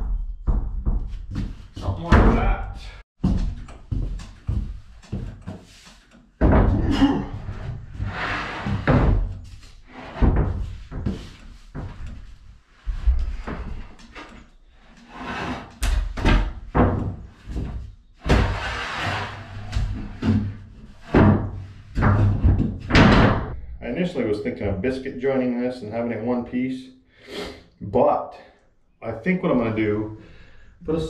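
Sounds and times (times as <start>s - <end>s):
plywood boards thudding: 6.4s - 7.2s, 16.1s - 18.6s, 21.1s - 23.5s
board scraping over box: 18.3s - 19.7s.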